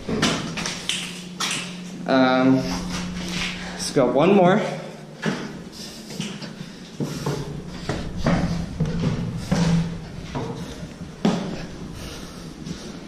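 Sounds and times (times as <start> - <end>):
footsteps on wooden stairs: 5.2 - 13.0.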